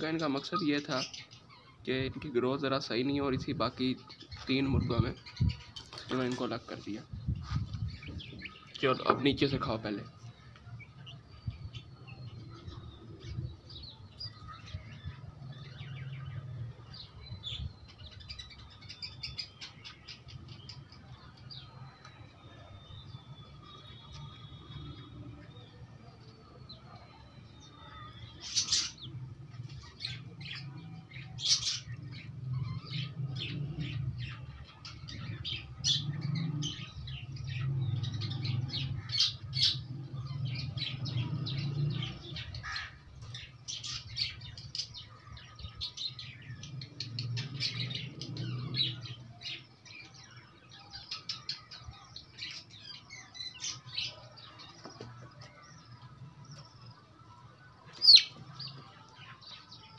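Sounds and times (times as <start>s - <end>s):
chicks chirping: 57.8s - 58.9s.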